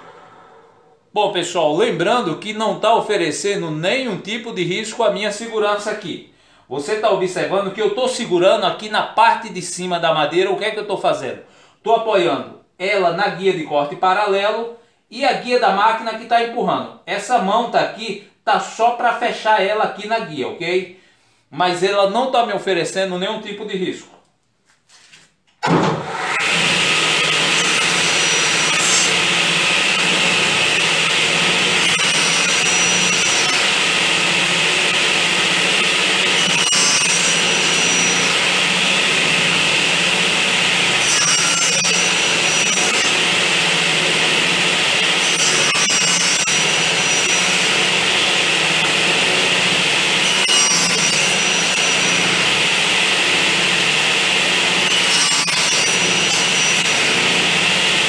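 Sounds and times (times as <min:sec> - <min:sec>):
table saw cutting wood: 0:25.6 - 0:58.0.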